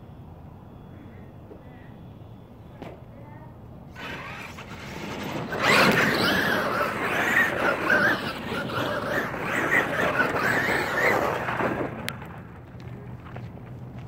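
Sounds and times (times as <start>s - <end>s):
electric motor and gears whining: 3.9s - 12.9s
tyres churning loose dirt: 3.9s - 13.7s.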